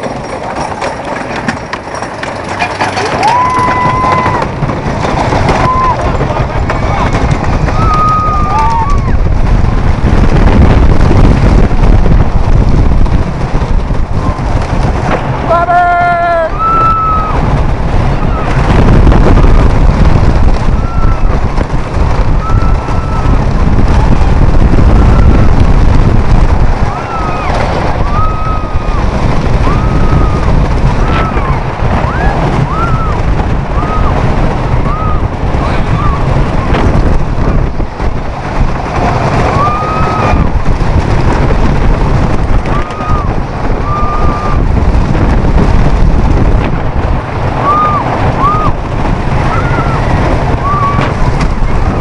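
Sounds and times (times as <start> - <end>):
roller coaster rumbling on track: 0.0 - 52.0
wind buffeting microphone: 0.0 - 52.0
riders screaming: 2.8 - 9.4, 15.4 - 18.8, 20.4 - 25.8, 26.8 - 37.2, 39.1 - 45.4, 47.4 - 52.0.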